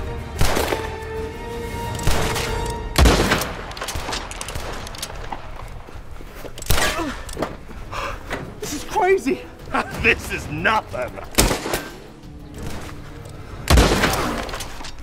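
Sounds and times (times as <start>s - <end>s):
handgun shots: 11.4s - 12.0s, 13.7s - 14.7s.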